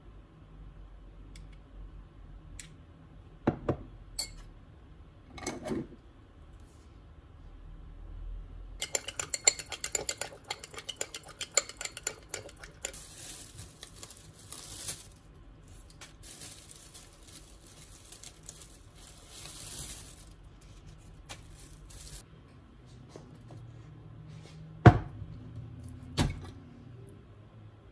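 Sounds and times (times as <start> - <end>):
spoon clinking against glass bowl: 8.8 - 13.0
plastic bag rustling: 12.8 - 22.3.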